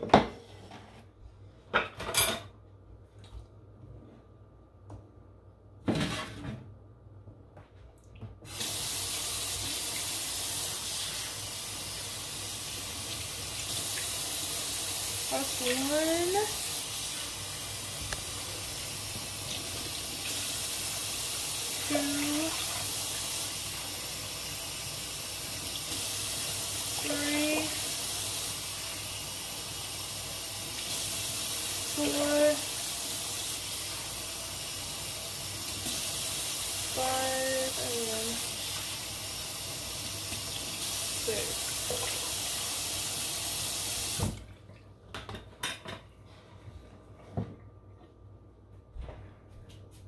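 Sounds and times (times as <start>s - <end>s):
tap water running: 8.1s - 45.4s.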